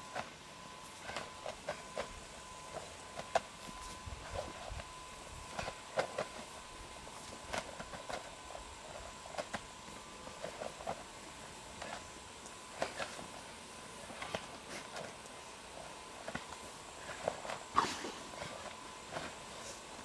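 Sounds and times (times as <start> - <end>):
footsteps on grass: 0.0 - 13.4
faint steady tone: 0.0 - 20.0.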